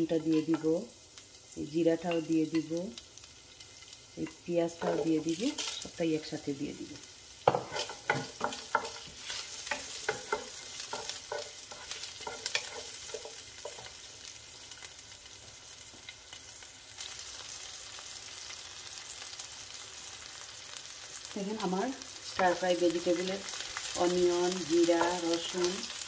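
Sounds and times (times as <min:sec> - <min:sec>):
food sizzling in hot oil: 0:00.0 - 0:26.0
wooden spatula scraping a pan: 0:07.4 - 0:14.0.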